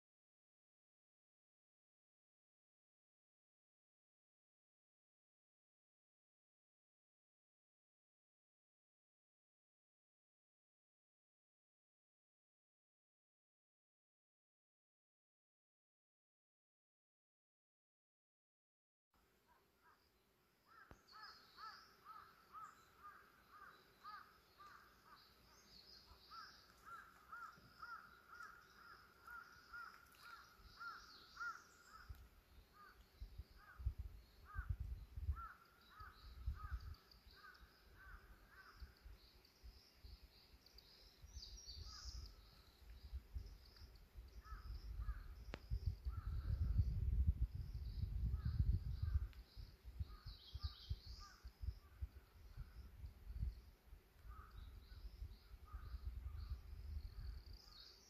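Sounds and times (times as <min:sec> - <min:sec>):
small birds chirping: 0:19.4 - 0:58.0
wind rumble on microphone: 0:28.5 - 0:37.1, 0:41.3 - 0:57.8.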